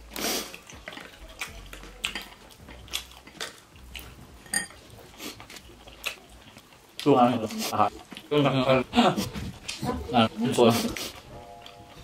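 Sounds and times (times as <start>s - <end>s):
quiet chewing: 0.0s - 12.0s
utensils clinking on bowls: 4.4s - 4.9s.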